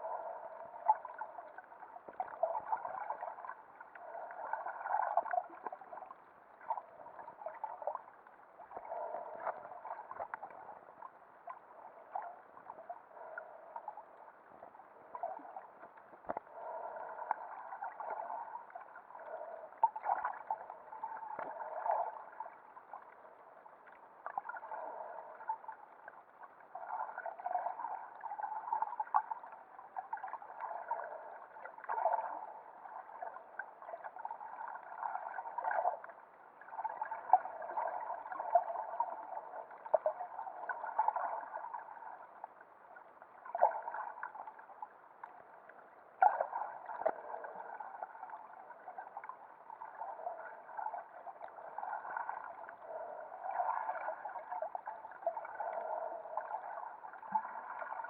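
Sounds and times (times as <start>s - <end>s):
underwater sloshing and gurgling: 0.0s - 58.0s
faint clicks: 15.8s - 16.5s.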